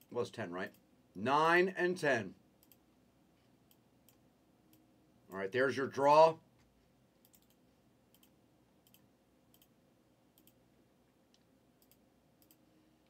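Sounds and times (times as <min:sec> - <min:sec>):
faint computer clicks: 0:07.2 - 0:09.7, 0:11.3 - 0:12.6.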